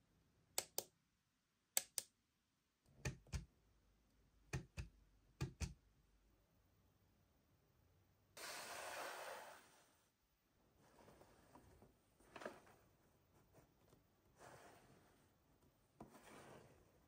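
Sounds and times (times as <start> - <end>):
short burst of hiss: 8.4 - 9.9.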